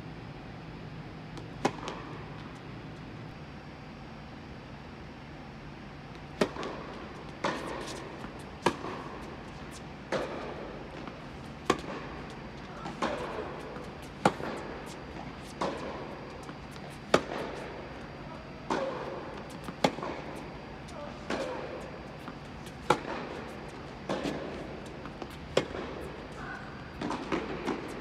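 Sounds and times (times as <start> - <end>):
tennis ball bouncing: 1.4 - 3.1, 6.1 - 28.0
tennis racket strikes: 11.7 - 17.6.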